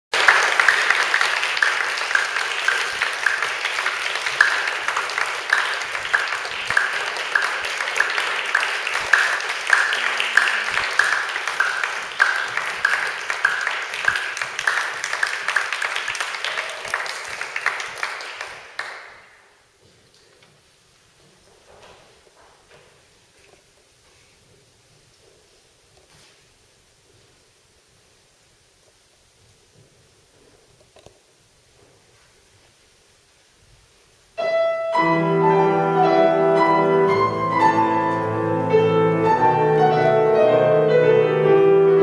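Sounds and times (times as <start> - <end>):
nearby hands clapping: 0.1 - 19.4
audience applauding: 0.1 - 19.6, 35.7 - 40.2.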